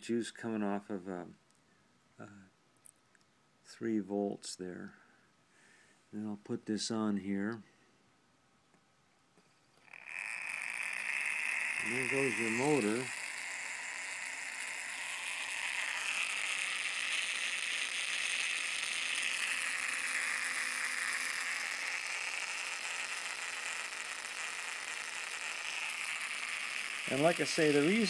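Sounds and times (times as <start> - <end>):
motor rotor whirring: 9.8 - 28.0.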